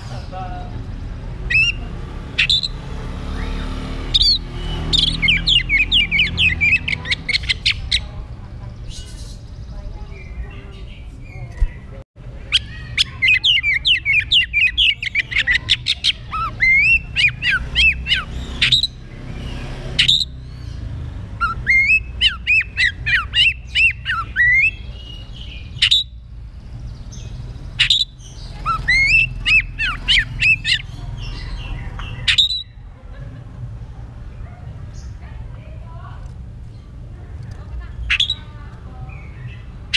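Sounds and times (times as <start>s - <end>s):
magpie-robin singing whistled phrases: 1.4s - 8.1s, 12.5s - 20.8s, 21.4s - 26.2s, 27.0s - 32.8s, 37.9s - 38.5s.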